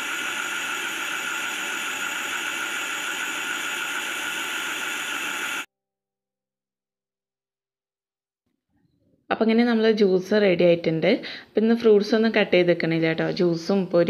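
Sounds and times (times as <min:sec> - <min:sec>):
mixer grinder motor whine: 0:00.0 - 0:05.7.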